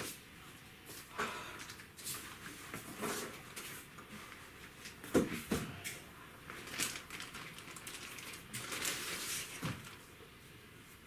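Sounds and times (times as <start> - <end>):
plastic bag rustling and crinkling: 6.5 - 10.2.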